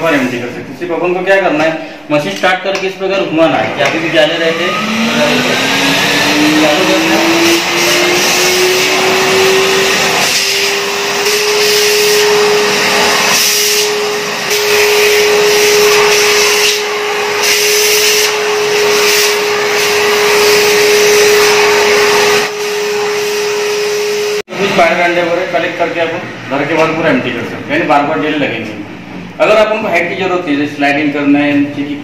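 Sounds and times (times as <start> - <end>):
vacuum cleaner motor whine: 3.8 - 26.7.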